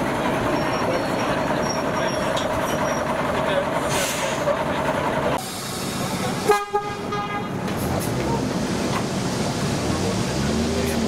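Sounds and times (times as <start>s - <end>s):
locomotive horn toot: 6.4s - 7.6s.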